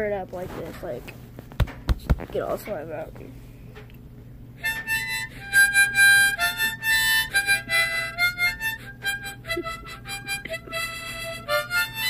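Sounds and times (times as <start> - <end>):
harmonica playing chords: 4.6 - 12.0.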